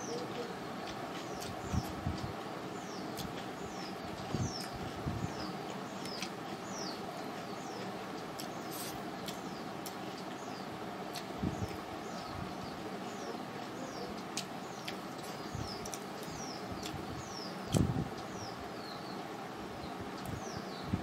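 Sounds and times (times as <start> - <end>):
small birds chirping: 0.0 - 21.0
steady background noise: 0.0 - 21.0
chewing: 0.1 - 10.4, 13.6 - 17.0.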